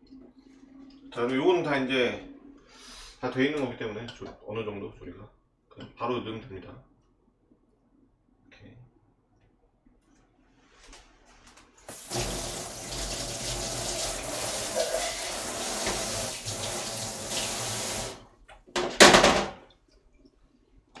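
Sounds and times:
faucet running onto hands: 11.9s - 18.3s
gush of water: 11.9s - 18.3s.

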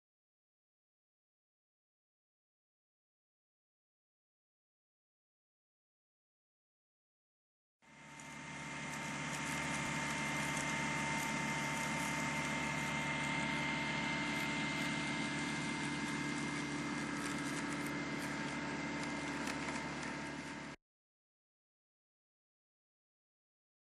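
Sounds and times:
steady high whine: 7.8s - 20.8s
tractor engine running: 7.9s - 20.8s.

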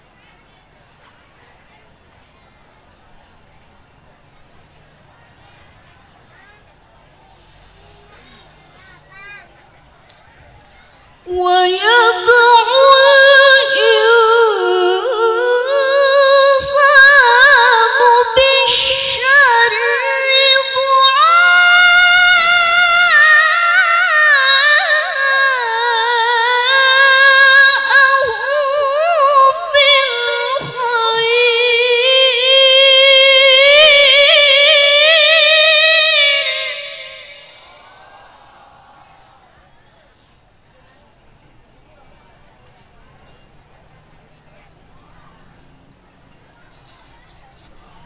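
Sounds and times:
woman reciting melodically: 11.2s - 38.0s.

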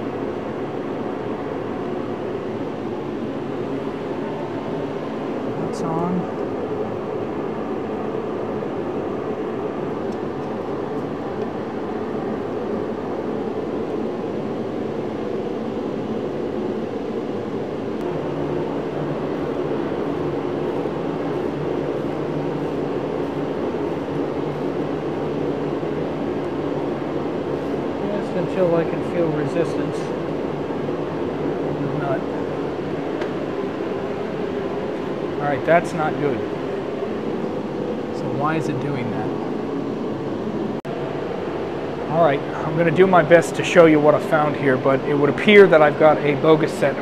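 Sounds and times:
machinery rushing noise: 17.6s - 47.0s.

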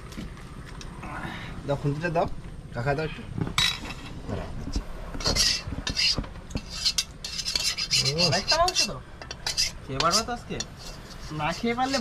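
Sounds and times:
metal spoon scraping a pan: 5.2s - 12.0s.

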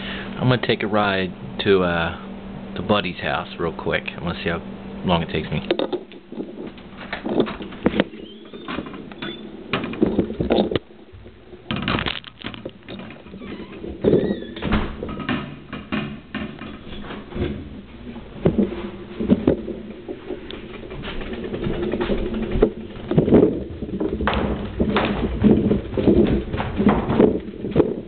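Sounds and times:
short squeaks: 8.1s - 9.6s, 13.2s - 14.7s
footsteps in tiled stairwell: 13.3s - 28.0s.

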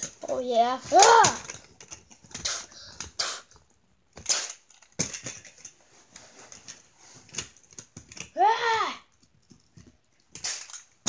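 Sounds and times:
toy hissing and scuffing: 2.3s - 3.6s, 4.2s - 4.9s, 10.3s - 11.0s.

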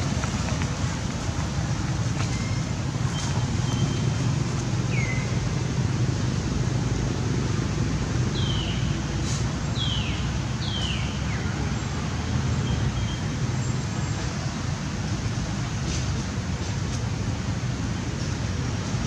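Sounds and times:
low outdoor rumble: 0.0s - 10.6s.

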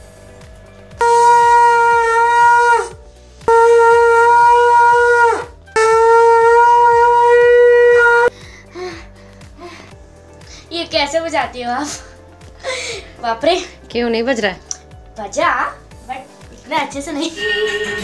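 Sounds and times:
conch shell blasts: 1.0s - 8.3s.

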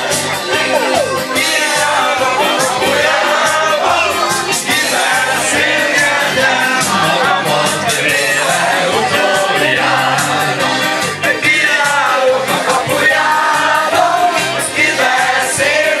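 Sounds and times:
folk dance music with singing: 0.0s - 16.0s.

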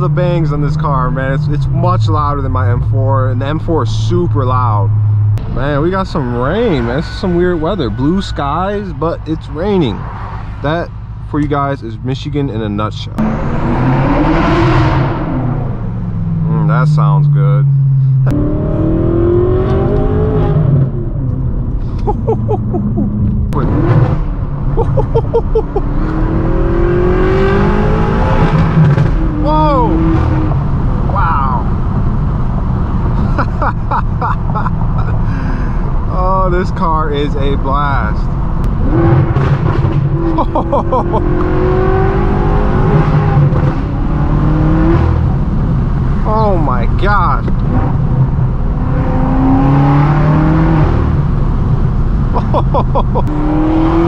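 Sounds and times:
engine accelerating: 13.1s - 54.0s
exhaust pops and crackles: 28.5s - 29.4s.

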